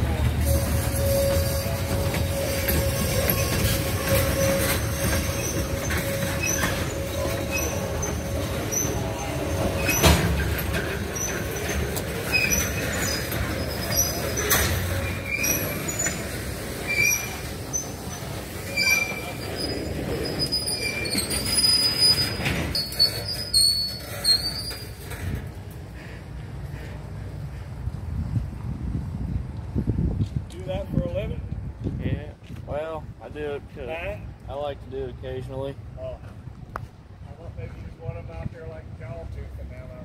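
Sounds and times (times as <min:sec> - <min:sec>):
wheels squealing: 0:00.0 - 0:27.8
train wheels rumbling on rails: 0:00.0 - 0:40.0.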